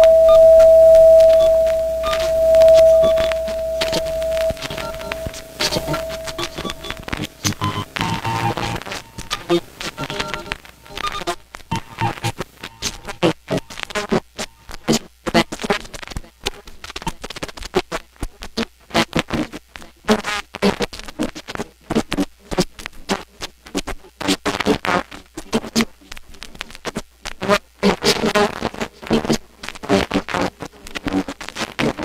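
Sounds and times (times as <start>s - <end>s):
turntable scratching: 3.9s - 11.2s.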